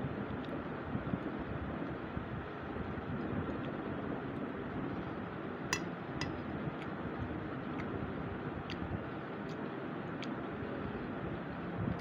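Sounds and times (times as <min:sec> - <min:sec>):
metal spoon clinking on plate: 0:05.7 - 0:06.4.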